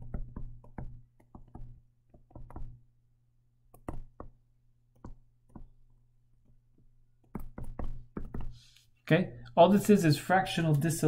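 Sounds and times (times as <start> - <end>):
stylus tapping on tablet screen: 0.0 - 2.8, 3.7 - 8.8.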